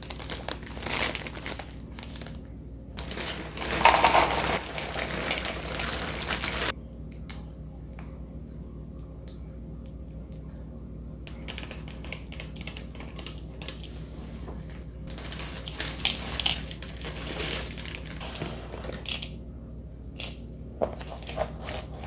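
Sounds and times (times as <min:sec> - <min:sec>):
packets shaken out: 0:00.0 - 0:02.3, 0:03.0 - 0:06.7, 0:15.1 - 0:18.3
plastic bag crinkling: 0:00.0 - 0:02.4, 0:03.0 - 0:06.7, 0:15.1 - 0:19.2.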